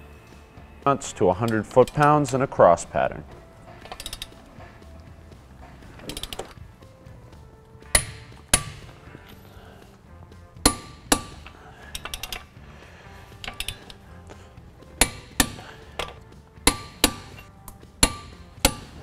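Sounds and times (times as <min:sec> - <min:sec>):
torque wrench clicks: 0:03.8 - 0:04.4, 0:06.0 - 0:06.6, 0:10.6 - 0:12.5, 0:13.4 - 0:14.0, 0:15.0 - 0:19.0
light ratchet ticks: 0:11.1 - 0:12.5, 0:13.4 - 0:14.0.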